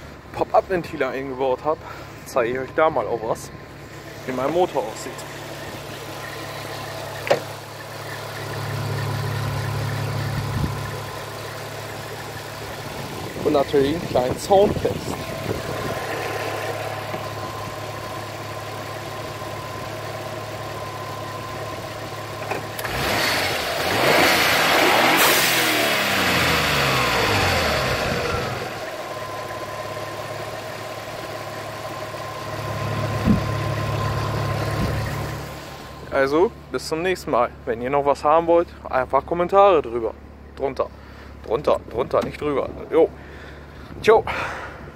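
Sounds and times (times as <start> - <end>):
car engine idling: 0.0 - 44.9
short thump: 33.2 - 33.5.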